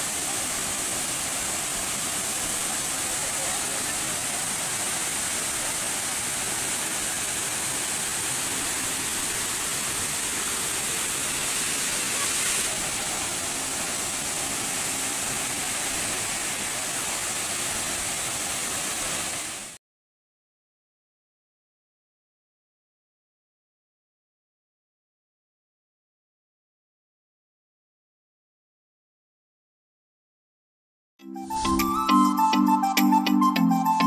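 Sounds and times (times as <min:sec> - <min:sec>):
waterfall rushing: 0:00.0 - 0:19.8, 0:31.5 - 0:33.0.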